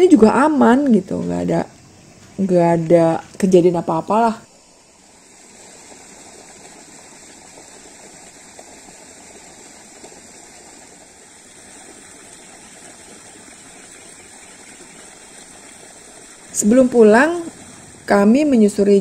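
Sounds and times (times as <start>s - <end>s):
steady rushing noise with hiss: 0.0s - 19.0s.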